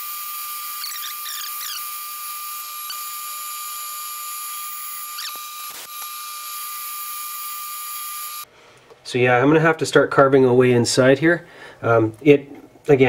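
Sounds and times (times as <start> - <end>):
wavering squeaks: 0.8 - 2.0, 2.8 - 3.1, 5.0 - 5.8.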